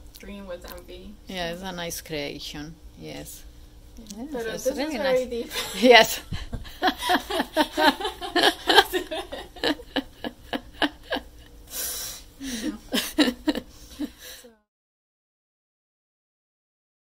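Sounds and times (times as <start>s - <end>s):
woman laughing: 5.4s - 11.5s, 12.4s - 14.4s
breathy exhale: 11.7s - 12.8s.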